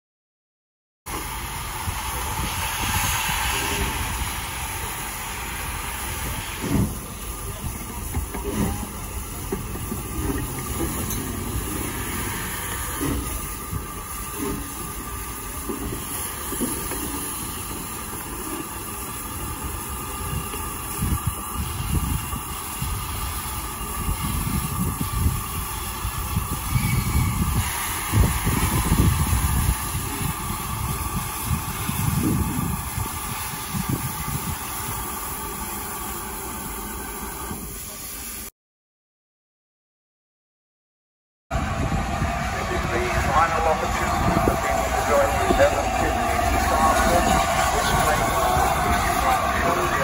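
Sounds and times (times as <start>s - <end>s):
locomotive rumbling: 1.1s - 38.5s, 41.5s - 50.0s
steam hissing: 1.1s - 38.5s, 41.6s - 50.0s
soft thuds on track: 6.6s - 7.1s.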